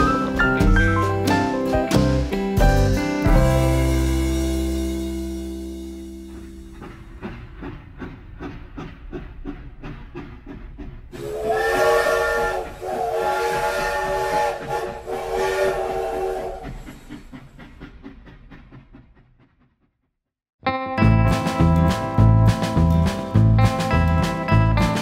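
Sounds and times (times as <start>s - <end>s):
steam locomotive chuffing: 0.0s - 2.3s, 3.3s - 20.0s.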